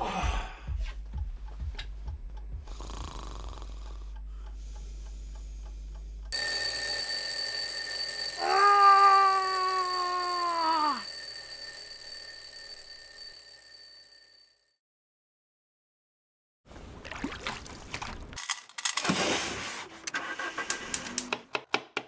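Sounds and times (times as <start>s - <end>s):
man groaning: 0.0s - 0.6s, 8.4s - 11.0s
alarm clock ringing: 6.3s - 14.7s.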